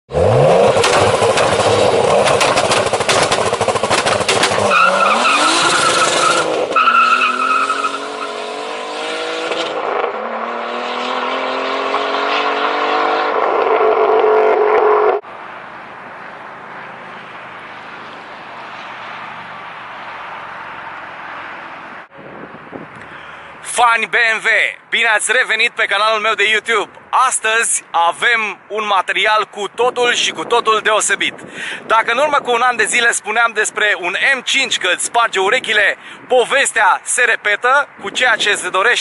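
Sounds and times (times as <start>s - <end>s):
exhaust crackles: 0.1s - 7.6s
car engine revving hard: 0.1s - 15.2s.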